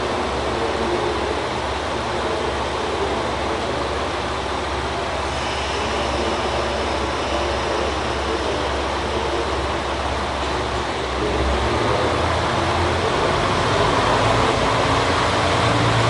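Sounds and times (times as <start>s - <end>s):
faint high steady tone: 0.0s - 11.8s
diesel engine idling: 0.0s - 16.0s
station noise: 0.0s - 16.0s.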